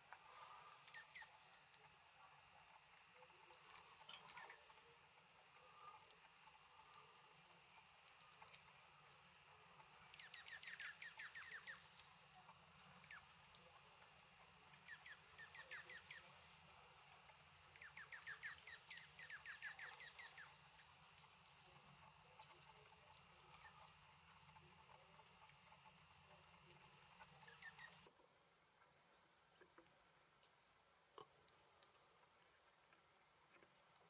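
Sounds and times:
songbird trills: 0.3s - 1.5s, 3.6s - 4.9s, 10.0s - 13.7s, 14.6s - 16.6s, 17.7s - 22.8s, 23.4s - 24.0s, 27.2s - 28.1s
high bird chips: 17.7s - 22.8s.

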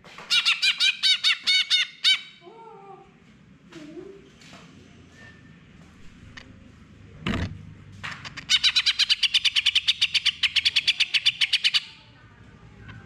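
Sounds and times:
bird singing rapid repeated notes: 8.4s - 12.1s.

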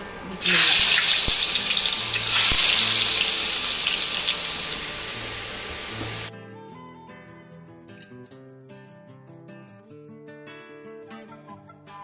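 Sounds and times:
onions sizzling in hot oil: 0.4s - 6.3s
soft guitar music: 1.2s - 12.0s.

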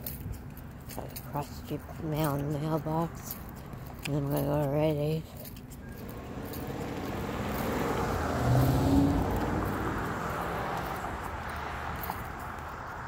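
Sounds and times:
car driving past: 5.9s - 13.0s.

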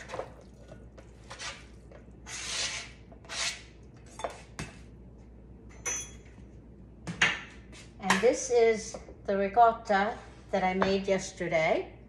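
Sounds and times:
dishes and utensils clinking: 5.7s - 6.4s.

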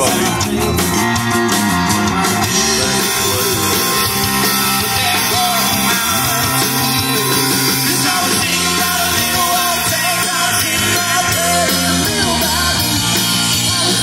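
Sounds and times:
rock band playing: 0.0s - 14.0s.

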